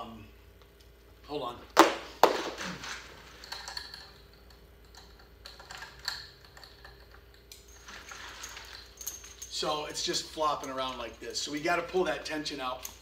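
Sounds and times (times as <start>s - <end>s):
gear clicking and rustling: 2.7s - 11.8s.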